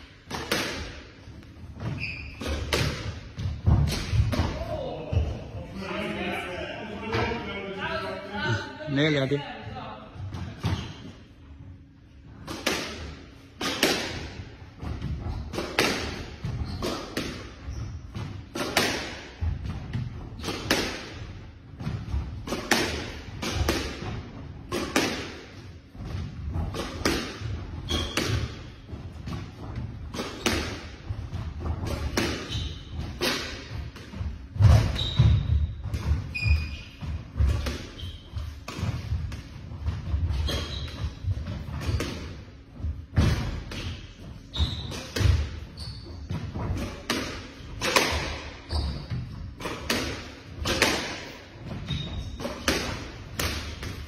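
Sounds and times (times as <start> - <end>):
squash ball hits: 0.1 - 1.1, 1.8 - 4.6, 12.4 - 44.0, 44.8 - 45.7, 46.3 - 54.0
shoes squeaking on wooden floor: 1.7 - 2.7, 34.5 - 38.6, 40.1 - 42.2, 43.9 - 46.7, 48.6 - 49.4, 51.8 - 52.5.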